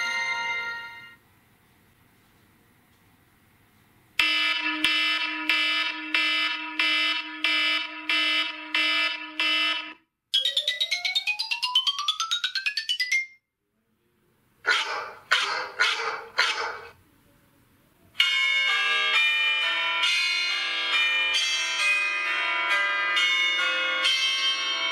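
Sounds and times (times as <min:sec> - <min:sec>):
chiming ringtone: 0:00.0 - 0:01.2, 0:10.4 - 0:13.4, 0:18.2 - 0:24.9
rising run of notes: 0:10.4 - 0:13.2.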